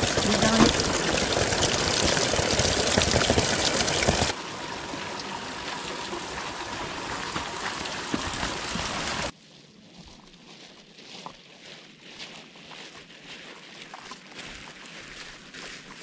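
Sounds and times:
water splashing into plastic can: 0.0 - 4.4
steady water hiss: 0.0 - 9.3.

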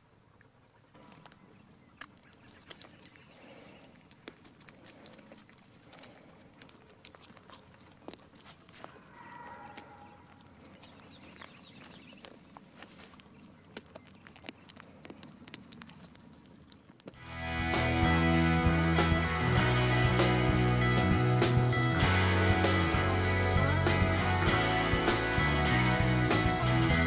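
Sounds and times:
goats nibbling clicks and crunches: 0.3 - 17.9.

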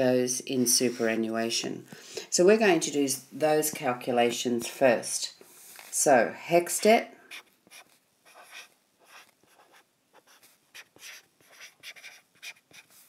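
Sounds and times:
scratchy writing on touchscreen: 7.2 - 13.0.

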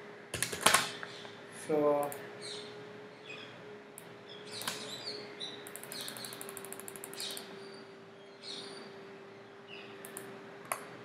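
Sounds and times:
low electrical hum: 0.0 - 11.0
computer mouse clicking: 5.6 - 7.5, 10.0 - 10.8
ratchet-like ticks: 5.6 - 7.5.

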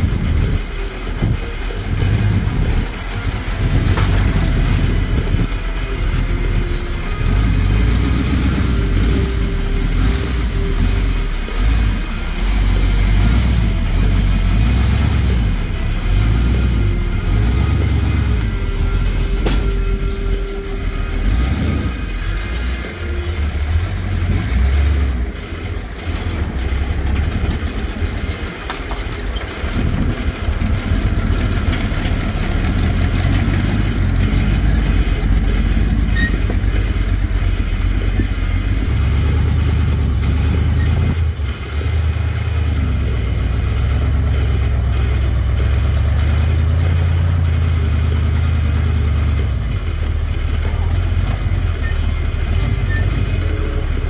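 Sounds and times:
buggy engine revving: 0.0 - 54.0.

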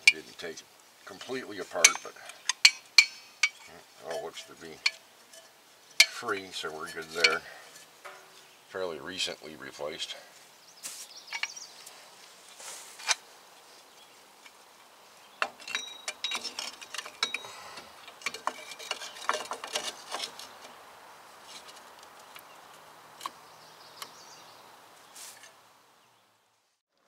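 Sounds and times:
metallic clicks of brake parts: 1.8 - 6.4, 15.4 - 20.3.

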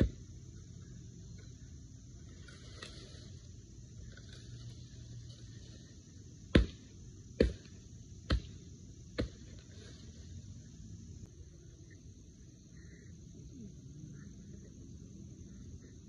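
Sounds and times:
axe chopping dry tree: 6.5 - 9.6.

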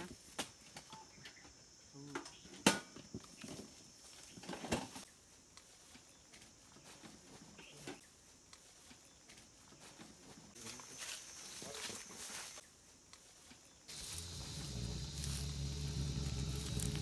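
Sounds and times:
faint steady high hiss: 10.5 - 17.0.

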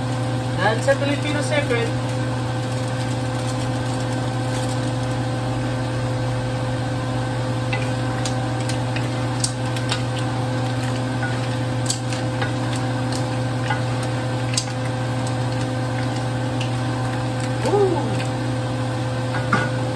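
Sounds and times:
food sizzling in a wok: 0.0 - 17.6
constant low hum: 0.0 - 19.9.

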